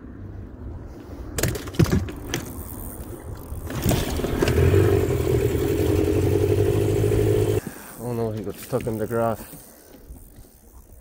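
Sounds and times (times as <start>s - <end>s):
outboard motor humming: 3.7s - 7.6s.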